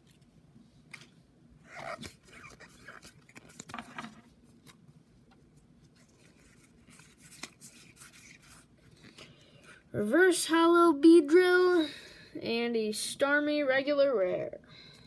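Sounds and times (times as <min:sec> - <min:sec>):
trading cards rustling and clicking: 0:01.9 - 0:04.8, 0:05.9 - 0:09.3.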